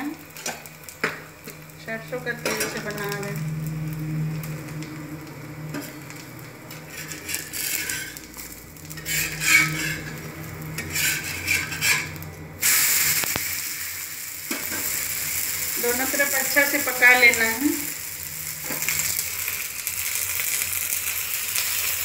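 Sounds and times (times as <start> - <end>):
batter sizzling on hot pan: 0.0 - 22.0
metal spatula scraping pan: 6.7 - 12.2.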